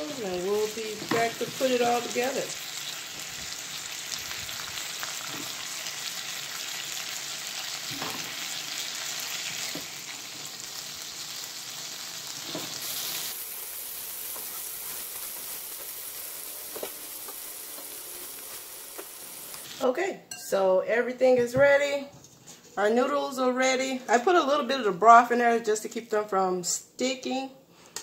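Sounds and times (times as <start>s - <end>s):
oil sizzling in a frying pan: 0.0s - 19.8s.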